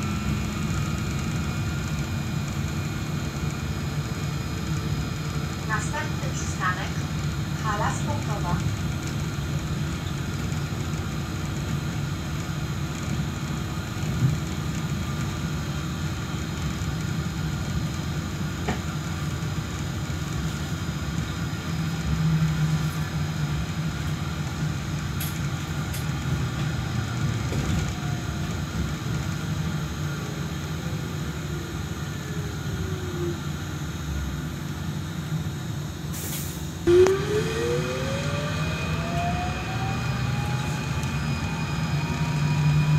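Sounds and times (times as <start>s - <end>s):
trolleybus running rumble: 0.0s - 42.9s
electric motor whine: 36.9s - 42.9s.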